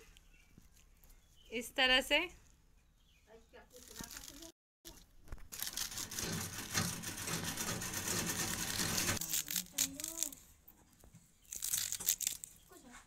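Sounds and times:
knife slicing leafy stems: 0:05.6 - 0:10.4.

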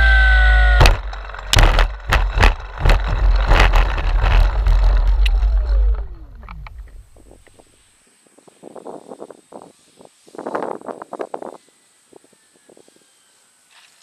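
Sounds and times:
low rumble: 0:00.0 - 0:07.5
propeller motor whine: 0:00.0 - 0:07.5
wheels knocking and scraping grass: 0:00.0 - 0:07.8.

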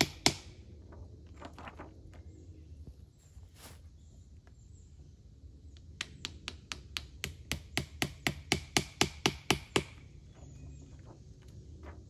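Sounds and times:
hammer nailing into tree: 0:00.0 - 0:00.6, 0:06.0 - 0:10.0.

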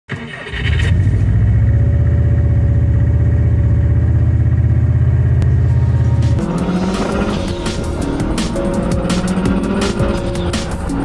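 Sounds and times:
car engine idling: 0:01.0 - 0:11.0.

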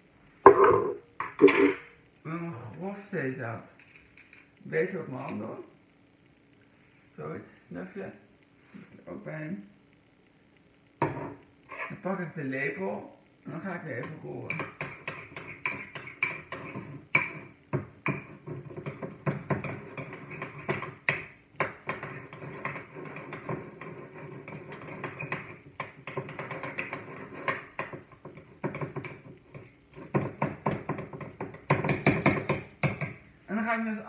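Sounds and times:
spoon knocks: 0:00.5 - 0:01.9
spoon scraping ceramic bowl: 0:14.5 - 0:17.4.

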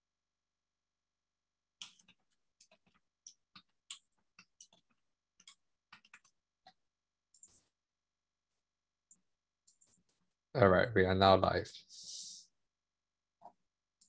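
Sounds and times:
computer keys clicking: 0:01.8 - 0:07.6.

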